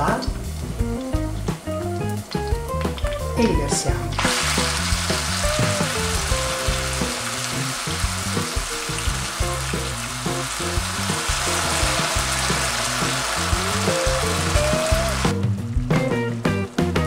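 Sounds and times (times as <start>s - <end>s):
food sizzling in a frying pan: 0.0s - 15.8s
soft background music: 0.0s - 17.0s.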